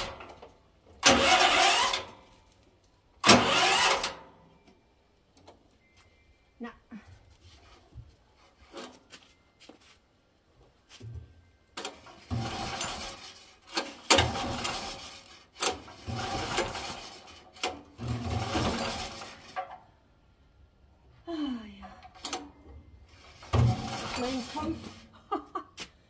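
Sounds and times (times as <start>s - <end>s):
generator pull-starter cranking: 0.0s - 2.3s, 3.2s - 4.4s, 11.8s - 19.8s, 23.2s - 25.0s.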